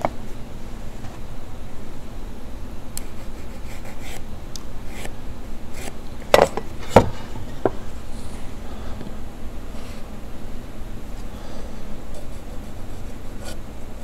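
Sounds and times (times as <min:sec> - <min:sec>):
pencil scraping on wood: 0:12.2 - 0:13.6.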